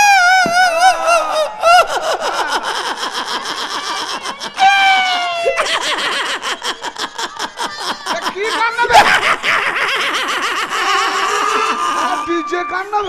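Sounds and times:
man wailing into microphone: 0.0s - 2.7s, 4.6s - 5.6s, 10.8s - 12.8s.

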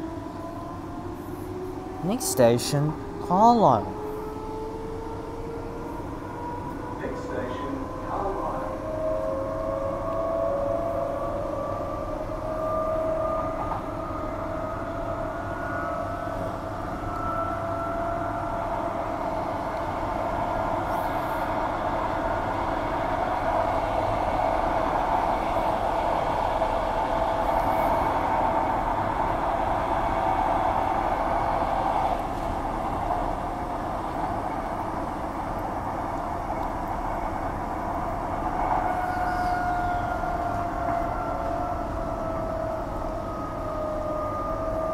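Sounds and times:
train motor whine: 4.0s - 44.9s.

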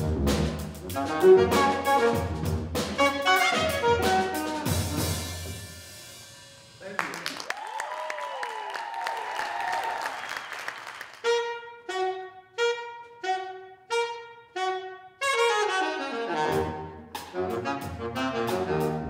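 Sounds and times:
drum kit: 0.0s - 7.3s, 16.4s - 19.0s
pitch-shifted saxophone: 0.8s - 5.2s, 11.1s - 19.0s.

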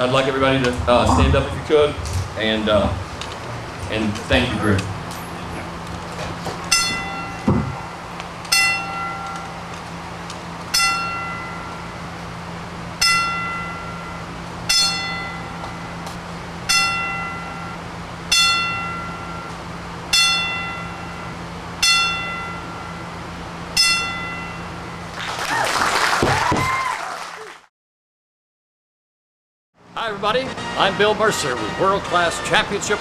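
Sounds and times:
ring bell tolling: 6.7s - 9.6s, 13.0s - 16.0s, 16.7s - 25.0s.

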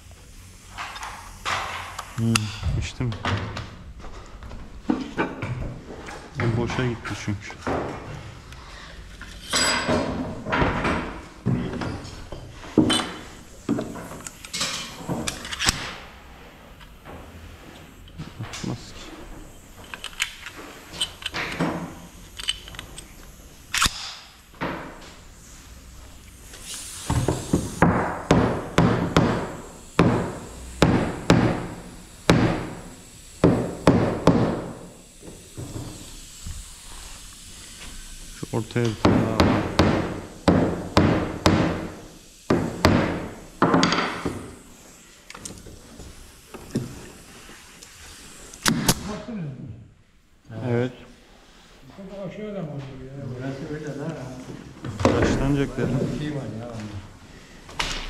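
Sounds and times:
hammer striking wood: 27.2s - 32.8s, 33.4s - 34.8s, 39.0s - 41.9s, 42.5s - 44.4s.

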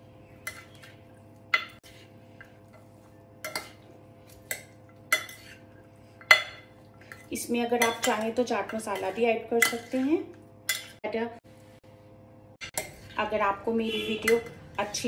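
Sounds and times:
spoon clinking on ceramic dish: 6.2s - 7.2s, 7.8s - 8.4s.

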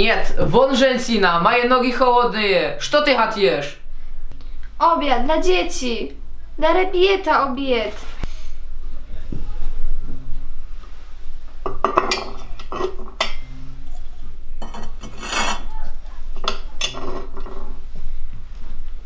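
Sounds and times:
enamelware clattering on stove: 11.7s - 13.4s, 16.4s - 17.7s.

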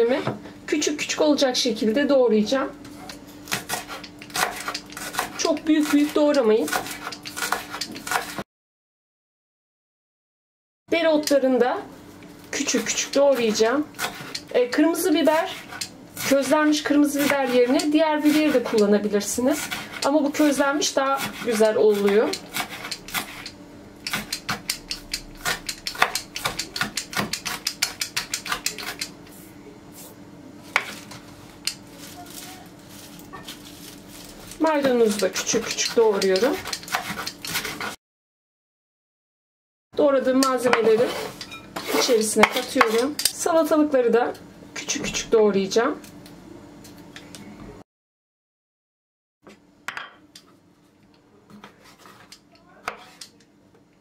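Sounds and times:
knife chopping on wooden board: 3.4s - 8.4s, 24.1s - 29.1s, 30.7s - 31.2s, 35.5s - 38.0s, 41.8s - 43.2s, 51.6s - 53.3s
knife clicking on cutting board: 24.0s - 29.1s.

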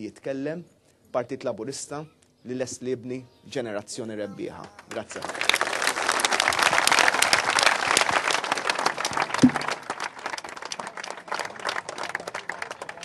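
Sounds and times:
crowd applauding: 4.5s - 13.0s.

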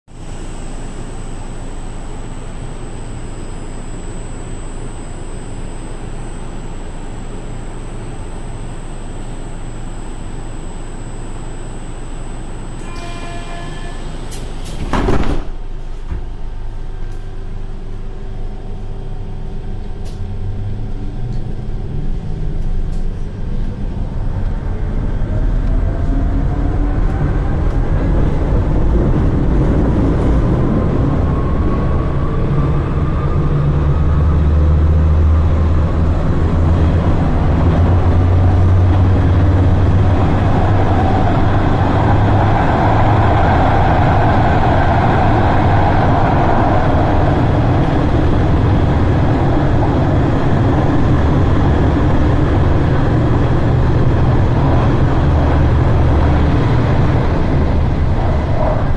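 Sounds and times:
train motor whine rising: 0.1s - 15.3s, 16.7s - 58.9s
train rumbling: 19.8s - 58.9s.

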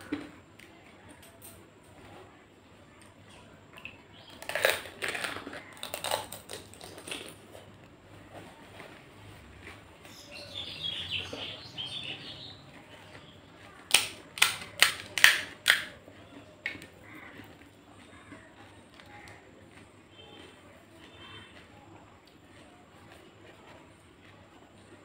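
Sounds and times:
wet chewing: 3.0s - 25.0s
crisp shell crunching: 4.1s - 7.7s, 13.9s - 16.0s
crisp shell cracking: 4.2s - 7.4s, 13.9s - 16.0s.

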